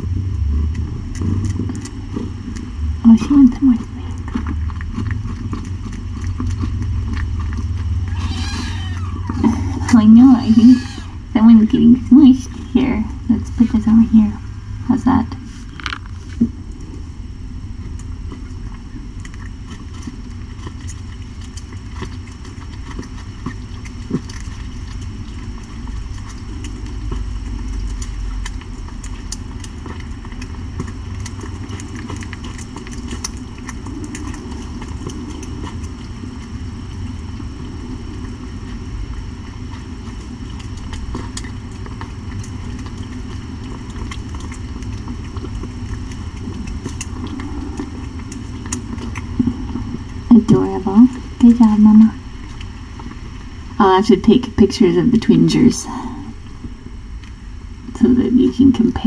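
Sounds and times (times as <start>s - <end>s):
cat purring: 39.4s - 52.2s.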